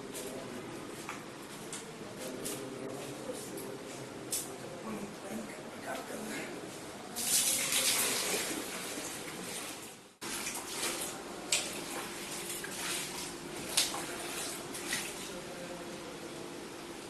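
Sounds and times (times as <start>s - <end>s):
water pouring from a bucket: 7.2s - 15.3s
water splashing: 7.2s - 15.5s.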